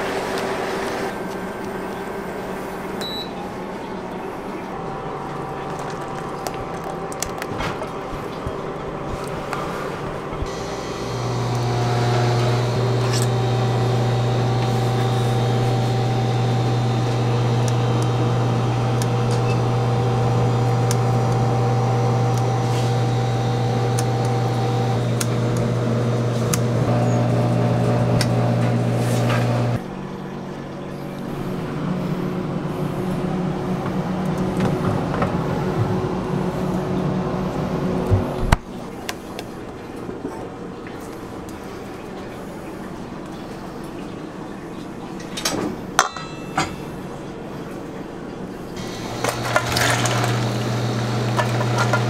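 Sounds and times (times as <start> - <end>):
rough machine hum: 0.0 - 30.0, 31.0 - 38.6, 48.8 - 52.0
electric motor hum: 10.4 - 29.8, 48.8 - 52.0.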